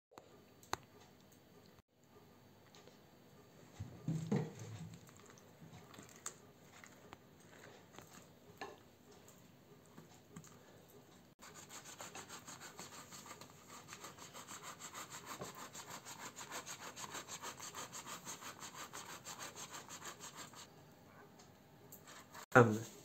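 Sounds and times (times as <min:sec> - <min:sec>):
box grater rasping food: 0:11.4 - 0:20.7, 0:22.0 - 0:22.4.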